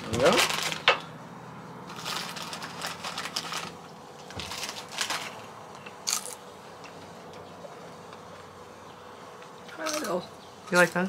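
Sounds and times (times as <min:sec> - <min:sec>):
potato chip crunch: 0:00.0 - 0:00.9, 0:01.9 - 0:06.4
plastic chip bag crinkling: 0:00.0 - 0:01.1, 0:01.8 - 0:06.5.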